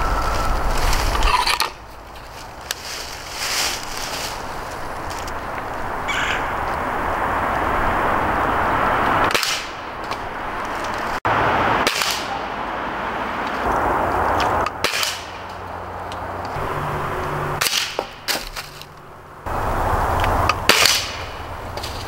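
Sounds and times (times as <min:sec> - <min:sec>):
air rifle shots: 0:11.8 - 0:12.4.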